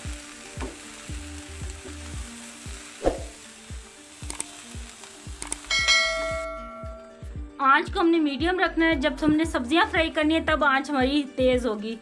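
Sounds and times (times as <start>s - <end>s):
food sizzling in a wok: 0.0s - 7.3s
background music with beat: 0.0s - 12.0s.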